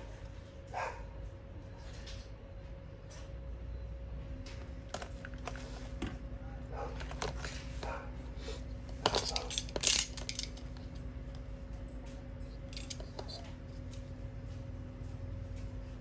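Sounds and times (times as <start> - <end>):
low electrical hum: 0.0 - 16.0
metal tools clinking on workbench: 8.9 - 11.1, 11.8 - 13.5.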